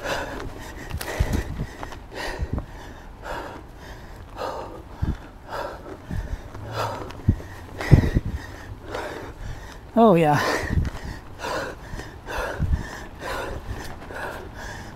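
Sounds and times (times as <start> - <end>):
person breathing hard: 0.0 - 14.9
bike thumping on trail: 0.1 - 9.9.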